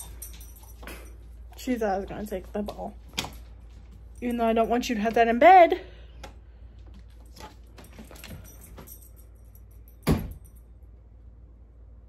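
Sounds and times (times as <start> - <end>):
light jingling: 0.0 - 5.6, 7.1 - 10.9.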